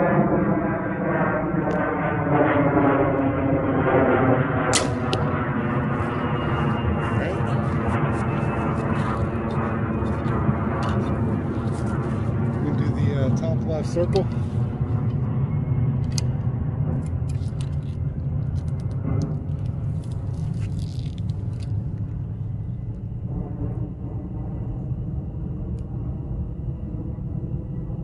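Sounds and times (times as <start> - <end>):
steady low rumble: 0.0 - 28.0.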